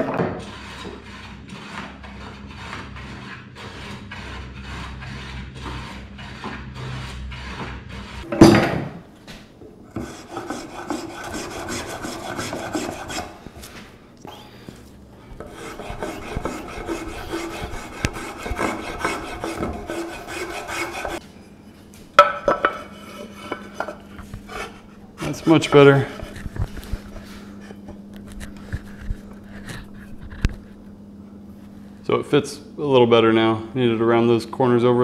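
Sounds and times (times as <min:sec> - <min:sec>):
spokeshave scraping wood: 0:00.1 - 0:08.3, 0:10.0 - 0:13.9, 0:15.4 - 0:21.2, 0:22.6 - 0:30.8.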